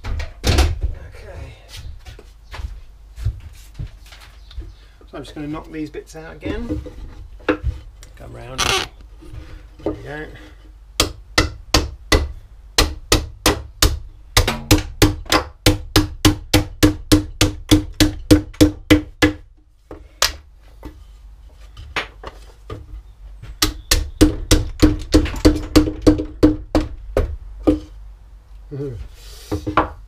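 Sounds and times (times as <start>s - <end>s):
hammer knocking on wooden board: 11.0s - 19.4s, 23.6s - 27.9s.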